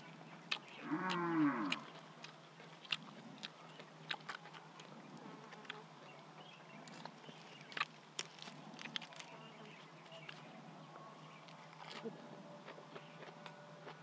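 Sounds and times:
lettuce leaves crinkling and tearing: 0.5 - 5.8, 6.8 - 10.6, 11.4 - 14.0.

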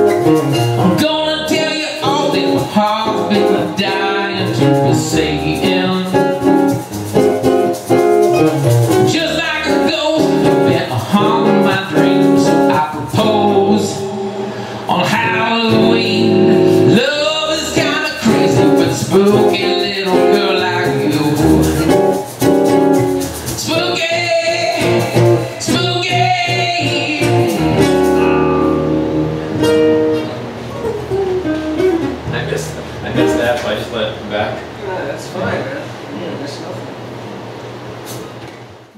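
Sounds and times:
acoustic guitars playing: 0.0 - 35.6
man singing into a microphone: 0.8 - 6.6, 9.1 - 21.9, 23.4 - 28.1.

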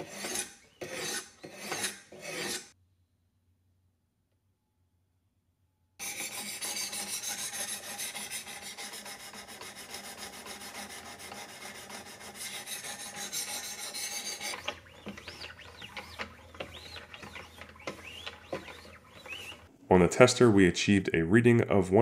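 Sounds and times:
sharpening stones scratching knife: 0.0 - 2.8, 6.0 - 16.0.

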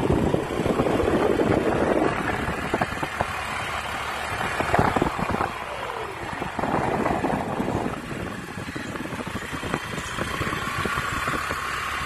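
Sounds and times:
motorbike engine: 0.0 - 12.0
wind buffeting microphone: 0.0 - 12.0.

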